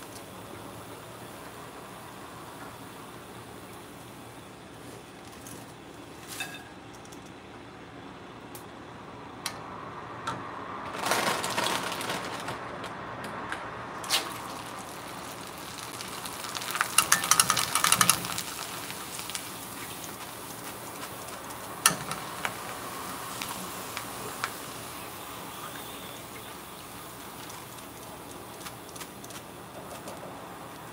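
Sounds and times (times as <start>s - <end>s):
crackling as food puffs up: 10.9s - 13.0s, 14.0s - 24.7s, 25.6s - 30.9s
food sizzling in hot oil: 14.1s - 30.9s.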